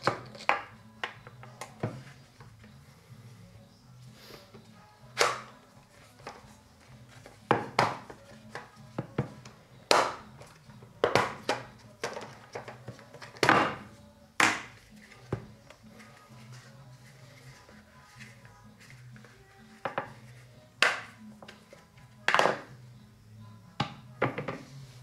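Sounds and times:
plastic parts snapping together: 0:05.2 - 0:05.5.

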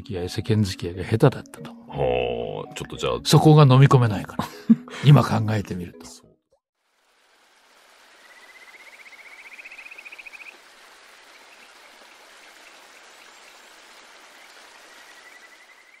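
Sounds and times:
rushing water: 0:06.8 - 0:16.0.

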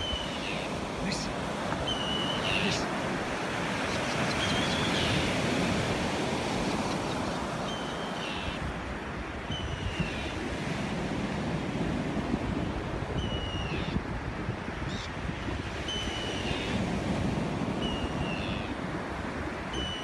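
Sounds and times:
surf washing on beach: 0:00.0 - 0:20.0
wind buffeting microphone: 0:08.6 - 0:20.0.

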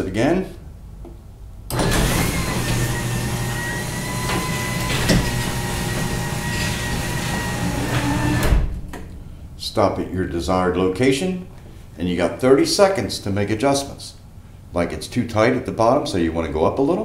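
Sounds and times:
garage door opener motor whine: 0:01.7 - 0:09.0.

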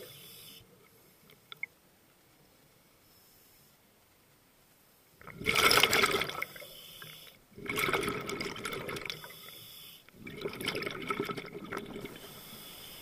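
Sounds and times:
underwater exhaust bubbles: 0:05.2 - 0:06.6, 0:07.6 - 0:09.3, 0:10.2 - 0:12.7.

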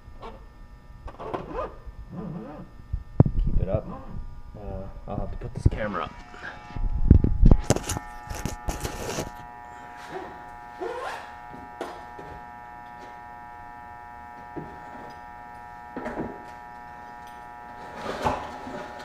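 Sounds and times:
electrical hum: 0:00.0 - 0:19.0
short scrape: 0:07.5 - 0:09.4.

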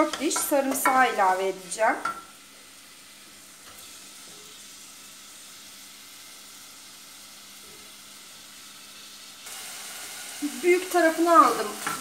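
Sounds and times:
onions sizzling in oil: 0:00.0 - 0:12.0.

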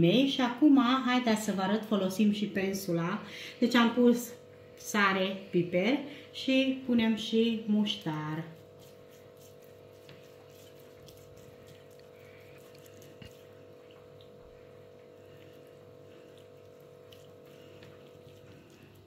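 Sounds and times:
steady hum: 0:00.0 - 0:19.0
pastry brush wet dabbing: 0:07.7 - 0:19.0.

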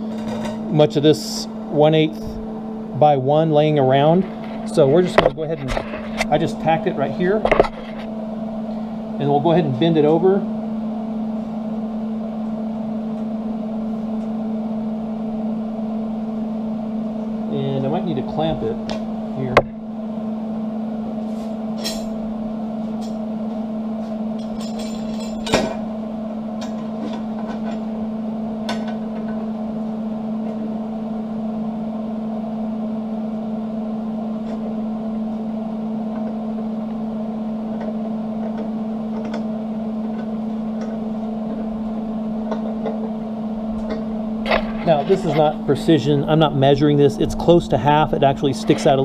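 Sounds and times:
steady hum: 0:00.0 - 0:49.0
metal clinks and knocks: 0:24.4 - 0:25.8.

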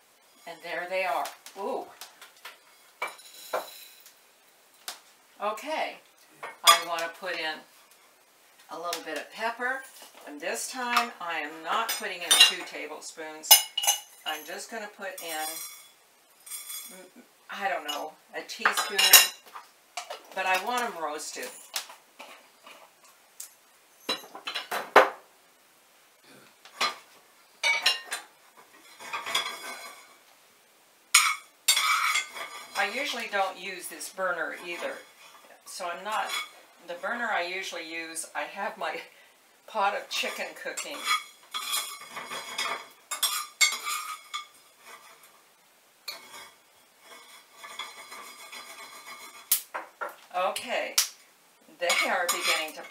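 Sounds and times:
metal pans clinking on stovetop: 0:13.5 - 0:17.0, 0:27.6 - 0:30.2, 0:31.1 - 0:33.4, 0:36.1 - 0:36.6, 0:40.2 - 0:45.3, 0:46.0 - 0:50.2, 0:51.8 - 0:52.9.

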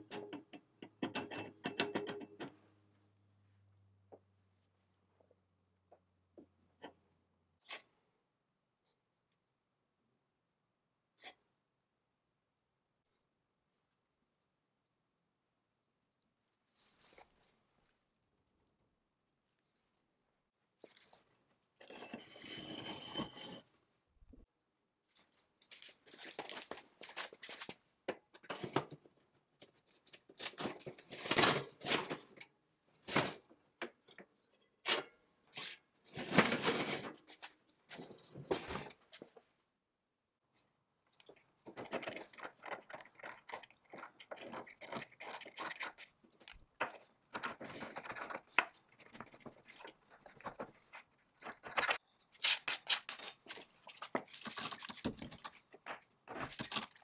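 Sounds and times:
knife scraping a ring: 0:21.8 - 0:23.6.

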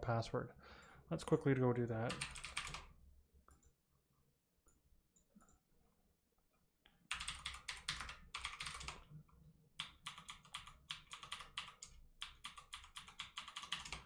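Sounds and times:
typing on a keyboard: 0:02.1 - 0:02.9, 0:07.1 - 0:09.1, 0:09.8 - 0:14.0.

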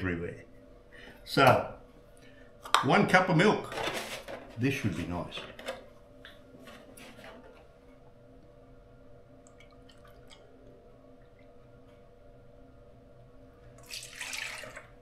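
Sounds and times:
faint hum: 0:00.0 - 0:15.0
milk pouring into plastic cup: 0:13.8 - 0:15.0.

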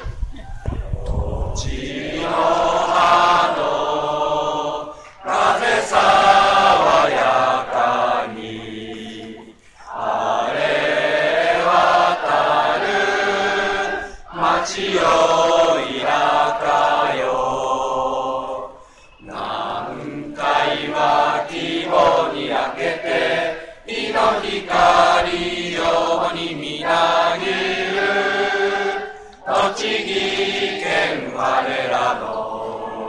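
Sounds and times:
stadium crowd singing in unison: 0:00.0 - 0:33.0.

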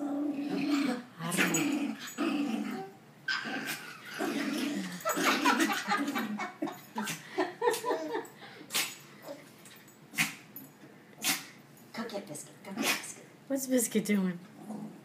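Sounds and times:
small dog growling: 0:00.0 - 0:06.4, 0:14.5 - 0:15.0
toddler laughing: 0:05.0 - 0:08.3.

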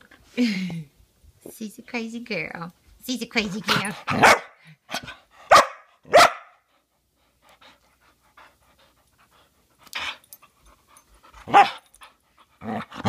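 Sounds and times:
dog barking: 0:04.1 - 0:06.6, 0:11.5 - 0:11.8
dog panting: 0:06.6 - 0:13.0.

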